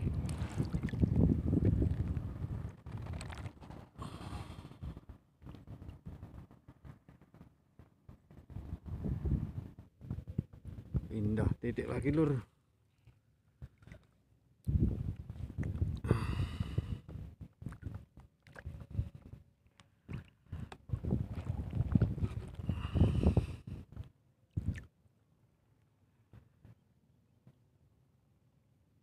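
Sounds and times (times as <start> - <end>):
wind buffeting microphone: 0.0 - 7.4, 8.3 - 11.7, 14.7 - 19.4, 20.5 - 24.0, 24.6 - 24.9.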